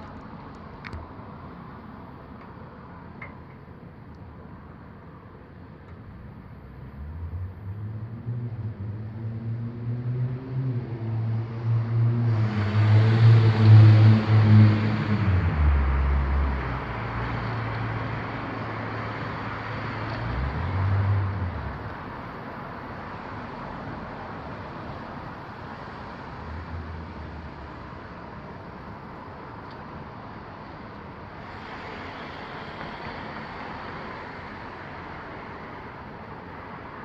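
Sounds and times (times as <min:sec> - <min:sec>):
distant traffic: 0:00.0 - 0:37.0
vehicle engine hum and road noise: 0:00.0 - 0:37.0.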